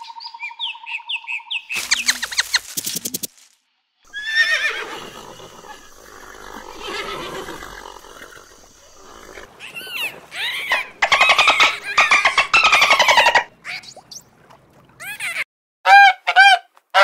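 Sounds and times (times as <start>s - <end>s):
horse whinnying: 4.1s - 13.4s.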